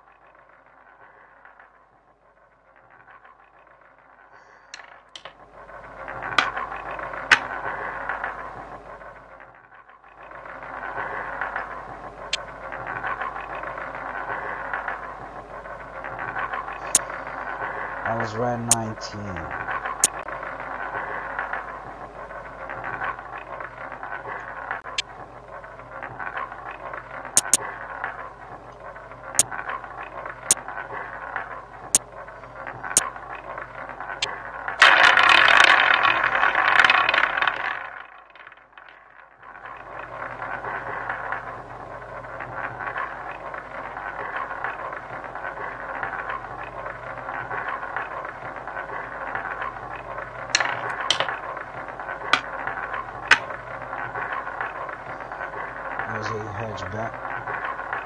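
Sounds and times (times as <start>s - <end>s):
steady game sound hiss: 10.2s - 38.0s
rushing burst of wheel spin: 34.0s - 41.6s.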